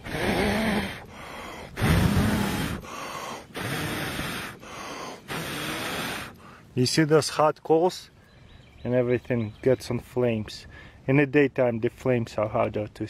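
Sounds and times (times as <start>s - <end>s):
person blowing on fire: 0.0s - 6.7s
person breathing in: 0.0s - 6.7s.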